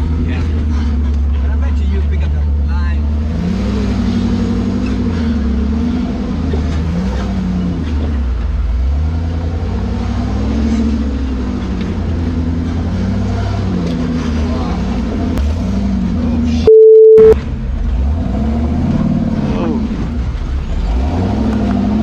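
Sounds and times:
engine revving: 3.0s - 8.0s, 20.8s - 22.0s.

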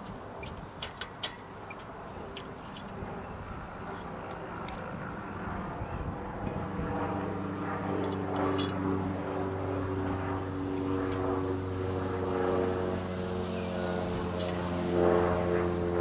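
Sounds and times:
model plane propeller drone: 0.0s - 16.0s
wind rumble on microphone: 2.8s - 11.6s.

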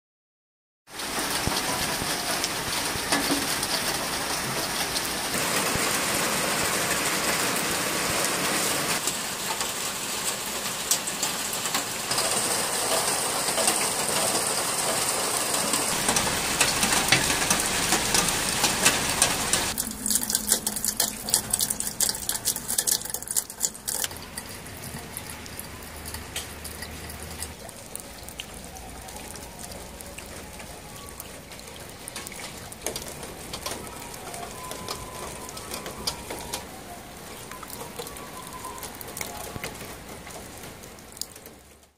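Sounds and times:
heavy rain hissing: 0.9s - 19.8s.

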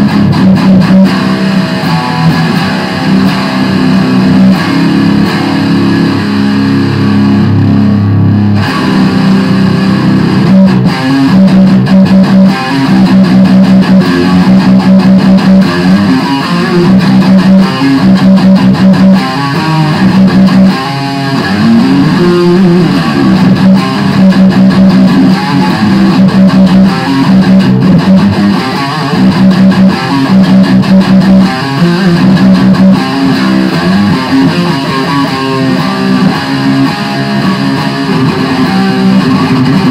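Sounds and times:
distorted electric guitar riffs: 0.0s - 39.9s.

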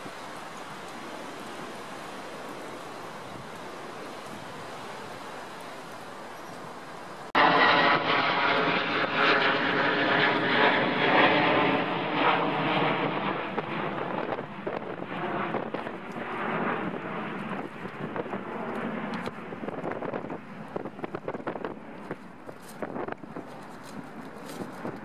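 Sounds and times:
jet engines whining and roaring: 0.0s - 25.0s.

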